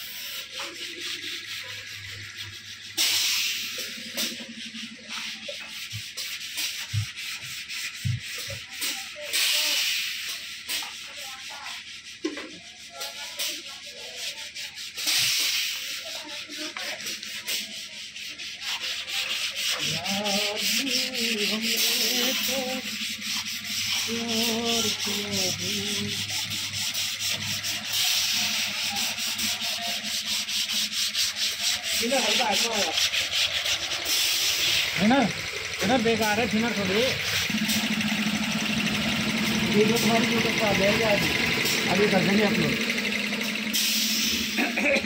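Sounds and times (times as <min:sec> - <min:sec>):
faint wavering pitched sounds: 0:00.0 - 0:06.4, 0:19.7 - 0:43.7
rapid rubbing and scraping: 0:00.0 - 0:45.0.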